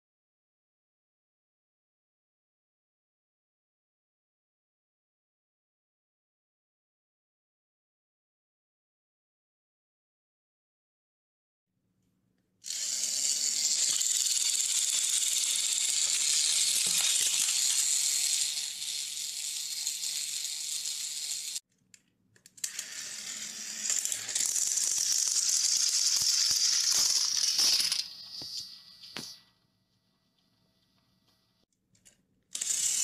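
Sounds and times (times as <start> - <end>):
toy train motors whirring: 12.6 - 21.6, 22.4 - 29.4, 32.0 - 33.0.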